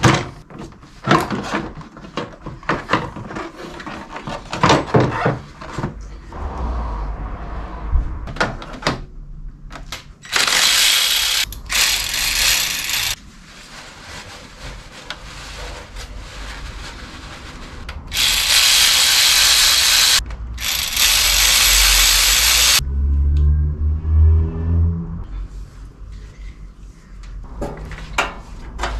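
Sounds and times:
electric ratchet running: 10.2 - 13.2, 18.1 - 22.8.

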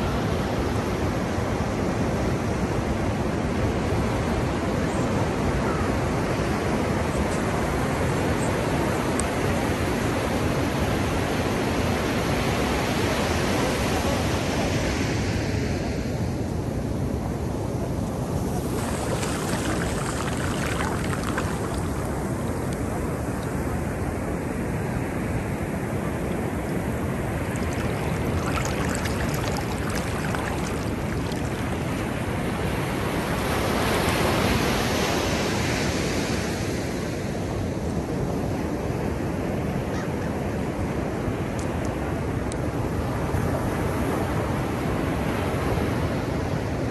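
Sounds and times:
ocean waves breaking: 17.9 - 24.6, 25.7 - 36.0
foamy wash running up sand: 18.1 - 23.6, 26.8 - 35.9.

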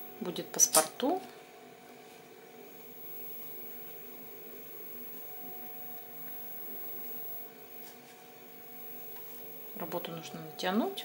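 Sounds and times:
room tone hum and hiss: 0.0 - 11.0
constant tones: 2.3 - 11.0.

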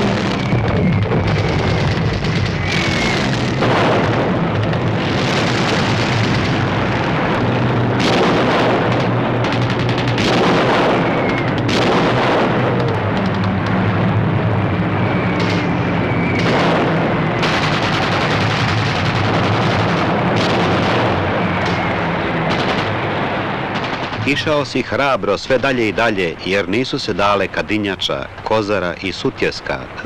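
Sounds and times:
gunfire: 0.0 - 13.6, 16.4 - 24.6
explosions: 0.0 - 26.4.

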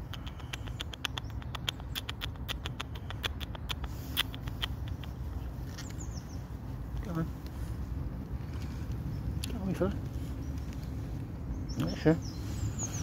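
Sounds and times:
squirrel gnawing clicks: 0.0 - 6.0
low background rumble: 0.0 - 13.0.

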